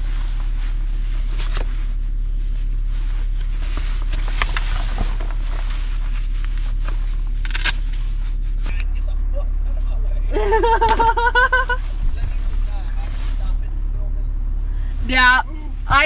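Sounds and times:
jacket rustling: 0.0s - 8.7s
low hum in truck cab: 0.0s - 16.0s.

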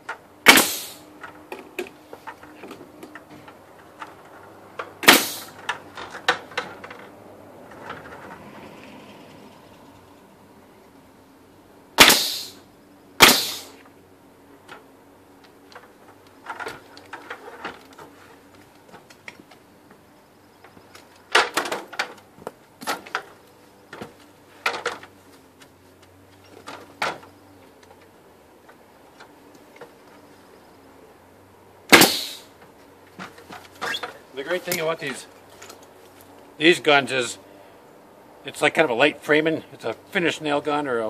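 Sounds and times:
nail gun firing: 0.4s - 1.1s, 5.0s - 5.6s, 12.0s - 12.6s, 13.2s - 13.8s, 31.9s - 32.4s.

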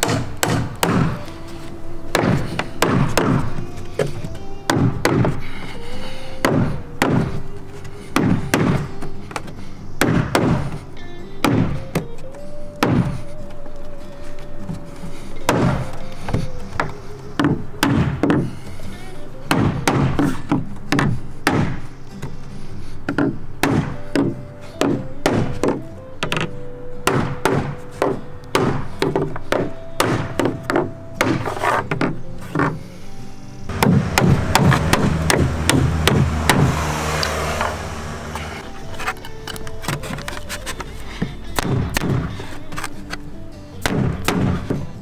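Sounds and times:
hammer striking nails into wood: 0.0s - 1.3s, 2.1s - 5.4s, 6.4s - 7.4s, 8.1s - 10.8s, 11.4s - 12.1s, 12.8s - 13.2s, 15.5s - 18.6s, 19.5s - 21.8s, 23.1s - 32.8s, 33.7s - 36.8s, 41.6s - 42.4s, 43.8s - 44.9s
background music: 0.0s - 45.0s.

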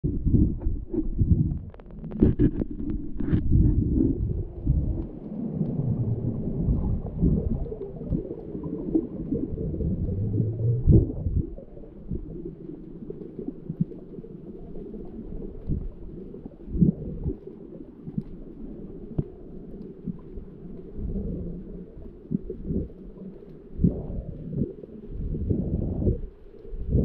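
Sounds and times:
underwater rumble of moving water: 0.0s - 27.0s
dull underwater knocks: 0.2s - 12.3s.

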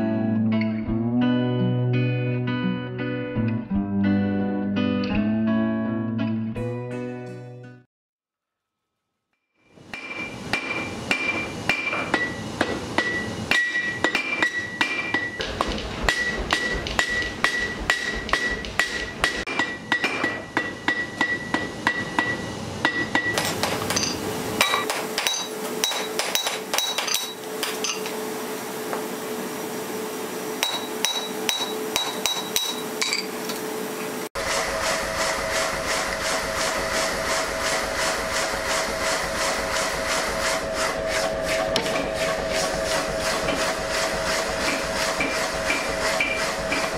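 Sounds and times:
hammer striking steel on anvil: 9.9s - 28.1s, 30.6s - 33.6s, 44.6s - 46.9s
steady hum: 10.0s - 20.0s.

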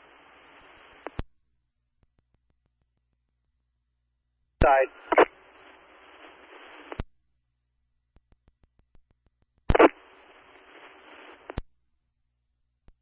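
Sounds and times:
radio channel hissing: 0.0s - 1.2s, 4.6s - 7.0s, 9.7s - 11.6s
radio squelch click: 0.4s - 1.3s, 4.6s - 7.1s, 8.2s - 11.7s.

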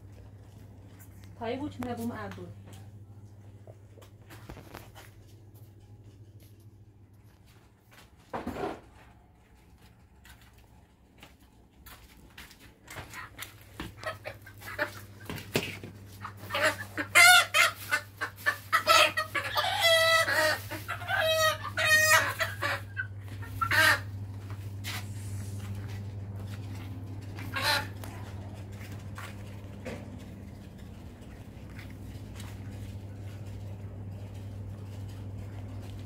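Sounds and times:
chicken squawking and clucking: 13.1s - 15.3s, 16.1s - 25.0s, 26.8s - 29.3s.

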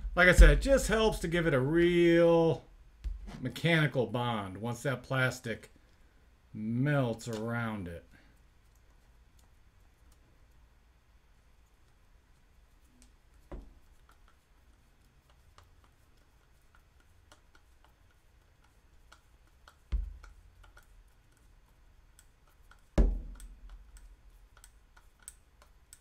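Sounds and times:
dull thumps: 0.0s - 1.9s, 3.0s - 3.5s, 13.5s - 13.8s, 19.9s - 20.6s, 23.0s - 23.8s.

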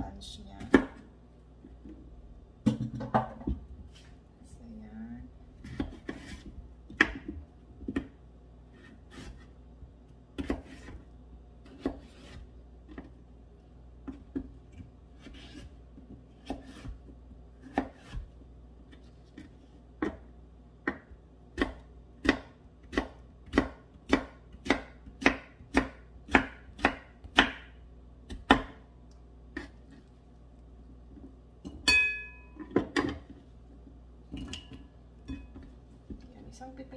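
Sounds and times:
knife chopping on wooden board: 0.6s - 1.0s, 5.6s - 8.2s, 8.8s - 9.5s, 10.4s - 11.0s, 11.6s - 13.1s, 14.0s - 18.4s, 20.8s - 28.8s.

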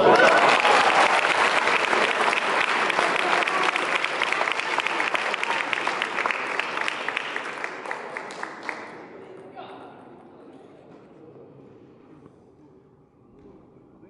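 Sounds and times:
spectators applauding: 0.0s - 9.2s.

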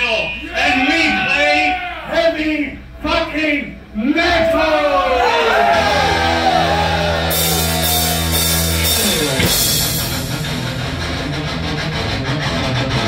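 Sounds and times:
distorted electric guitar: 5.8s - 13.0s
drums and cymbals: 6.1s - 11.7s.

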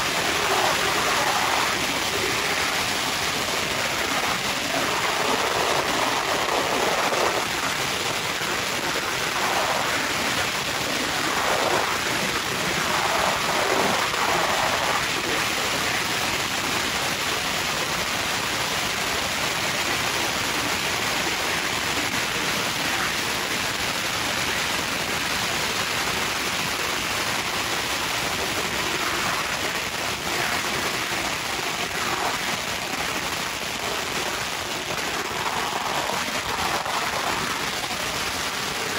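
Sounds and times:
firecrackers crackling: 21.7s - 38.9s.

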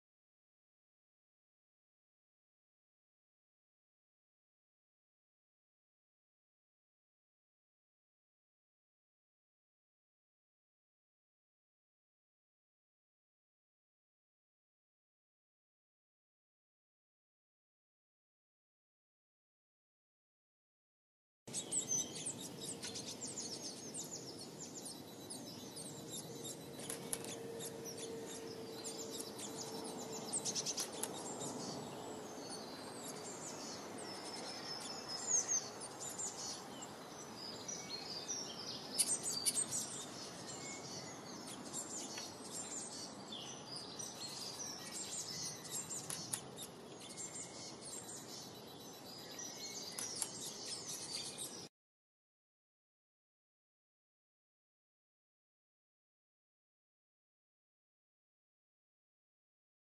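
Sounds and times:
songbirds chirping and singing: 21.5s - 51.7s.

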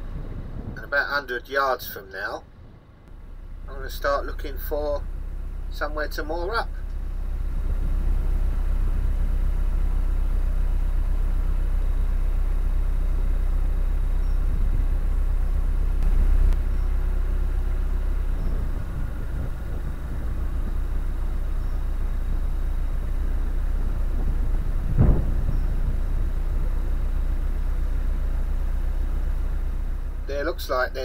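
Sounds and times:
diesel boat engine running: 0.0s - 31.0s.

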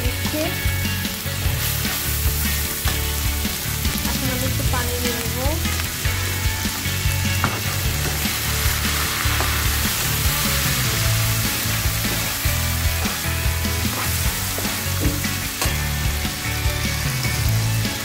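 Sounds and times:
onions sizzling in oil: 0.0s - 18.0s
spatula scraping and tapping pan: 13.8s - 15.8s.

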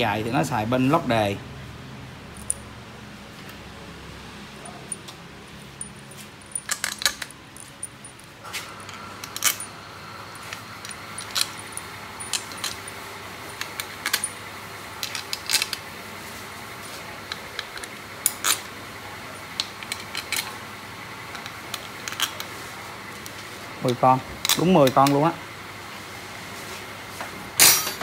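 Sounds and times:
steel bolts clinking on metal: 5.8s - 9.7s, 10.4s - 12.9s.

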